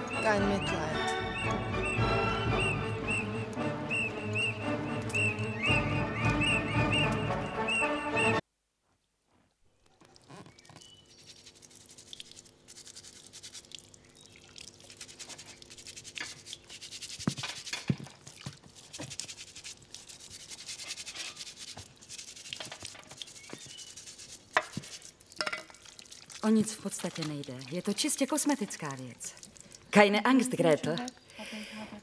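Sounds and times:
scratchy rubbing strokes: 11.1 - 13.7, 14.8 - 17.8, 18.7 - 25.2.

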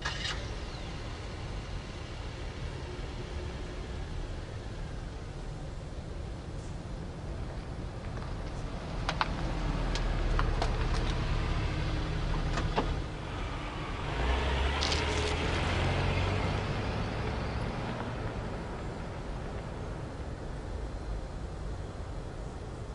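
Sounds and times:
car engines running: 0.0 - 22.9
car passing close: 8.6 - 21.2.

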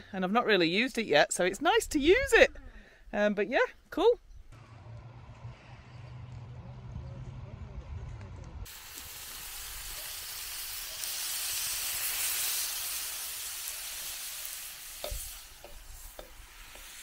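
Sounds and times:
food sizzling in a frying pan: 8.7 - 17.0.

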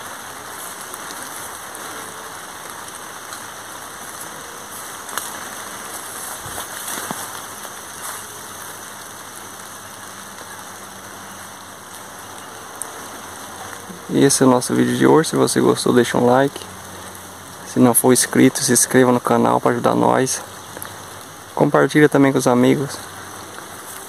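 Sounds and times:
rain falling: 0.0 - 24.0.

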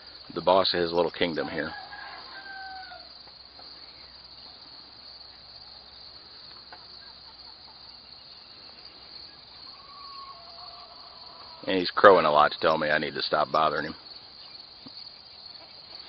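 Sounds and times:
crickets trilling: 0.0 - 16.0.

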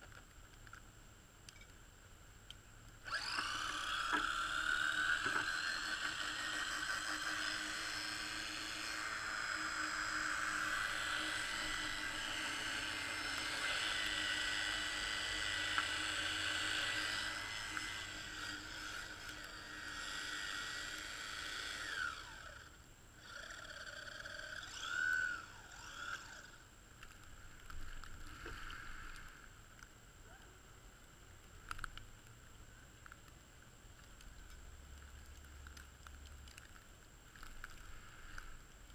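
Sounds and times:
radio-controlled car motor whining: 3.0 - 26.7.

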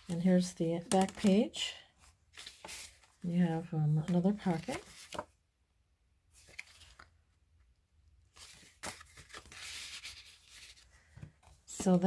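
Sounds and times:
stiff paper cards rustling: 0.0 - 1.5, 2.3 - 3.2, 4.0 - 5.3, 6.4 - 7.2, 8.3 - 12.0.

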